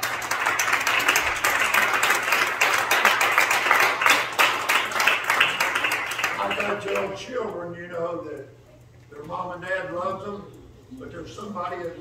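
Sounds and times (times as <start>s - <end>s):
congregation applauding: 0.0s - 7.2s.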